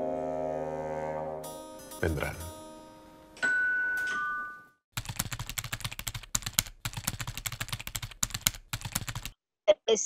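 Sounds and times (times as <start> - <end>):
two-tone chime: 1.8 - 4.8
keyboard typing clicks: 5.0 - 9.3.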